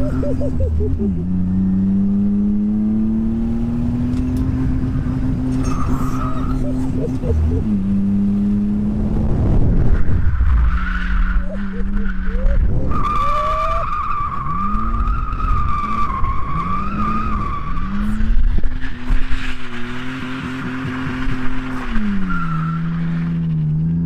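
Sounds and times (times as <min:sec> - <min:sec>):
car engine revving: 0:00.0 - 0:24.0
tyres squealing: 0:05.6 - 0:07.7.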